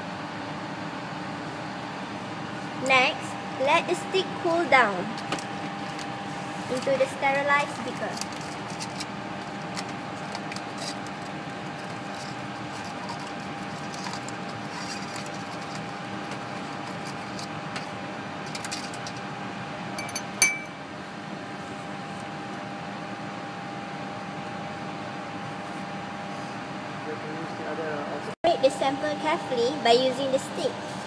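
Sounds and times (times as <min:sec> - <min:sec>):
fan hum: 0:00.0 - 0:31.0
glass clinking on glass: 0:20.0 - 0:20.8
glassware clicking: 0:20.0 - 0:20.8.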